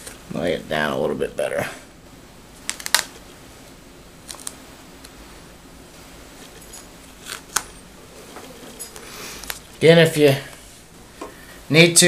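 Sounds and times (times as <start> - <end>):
plastic film peeling and crinkling: 2.6 - 3.2, 4.2 - 5.2, 6.4 - 9.8.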